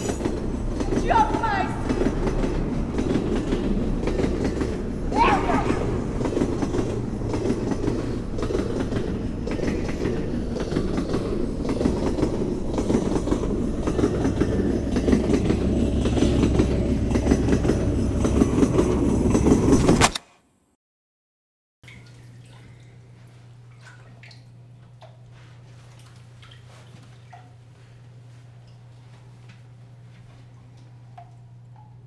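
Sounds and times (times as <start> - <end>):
train rumbling on rails: 0.0 - 20.1.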